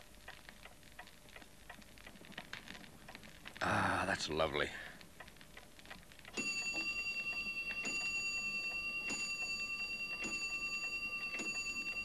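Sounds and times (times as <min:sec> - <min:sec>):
clock ticking: 0:00.0 - 0:12.0
steady high ringing tone: 0:06.3 - 0:12.0.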